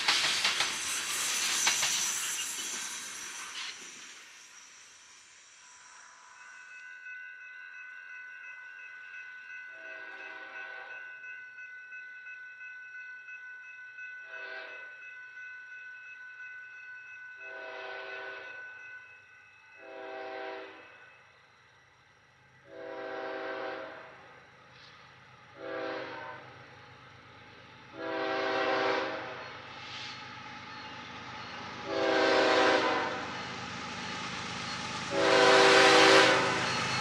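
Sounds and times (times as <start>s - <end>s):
distant train horn blasts: 17.5s - 18.5s, 19.8s - 20.9s, 22.7s - 24.2s, 25.6s - 26.5s, 27.9s - 29.4s, 31.8s - 33.3s, 35.1s - 36.7s.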